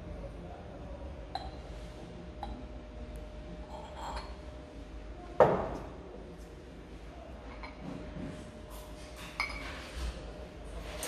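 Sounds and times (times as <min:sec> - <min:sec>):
glass mugs clinking: 0:01.3 - 0:01.6, 0:09.3 - 0:09.8.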